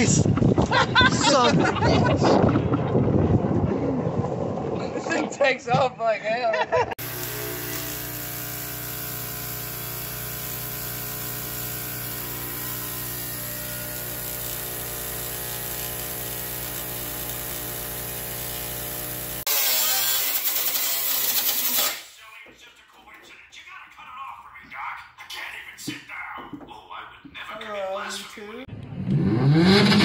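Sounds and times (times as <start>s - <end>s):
steady hiss: 7.0s - 18.6s
arc welder humming and crackling: 7.0s - 22.1s.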